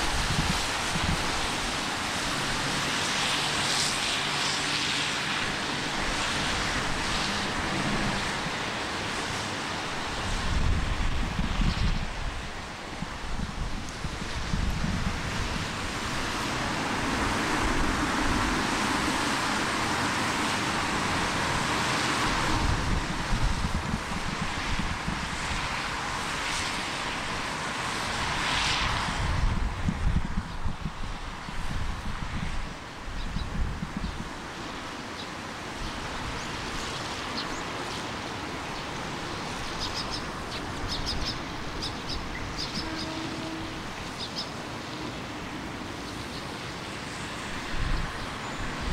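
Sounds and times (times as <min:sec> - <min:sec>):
wind buffeting microphone: 0:00.0 - 0:04.2, 0:05.2 - 0:34.6, 0:47.4 - 0:48.9.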